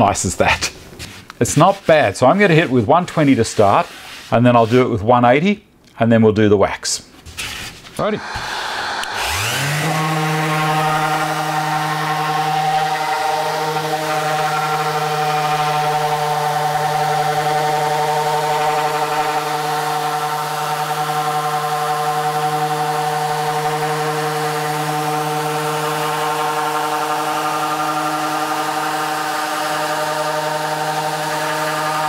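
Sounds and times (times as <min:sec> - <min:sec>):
electric sander running: 0:08.2 - 0:32.0.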